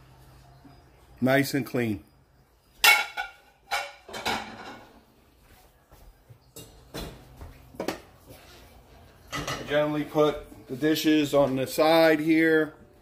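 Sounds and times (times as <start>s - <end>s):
ceramic plates clinking: 2.8s - 5.0s, 9.2s - 10.4s.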